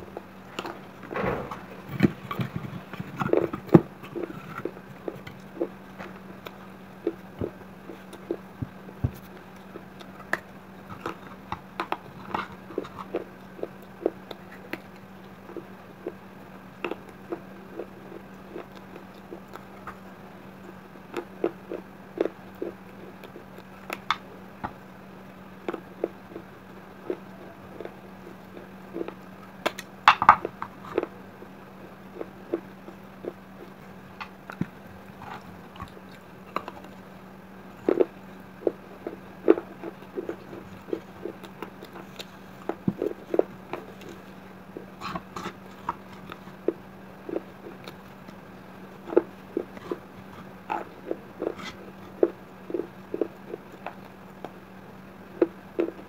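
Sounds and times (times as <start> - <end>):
chewing clay crunches: 25.6 - 54.6.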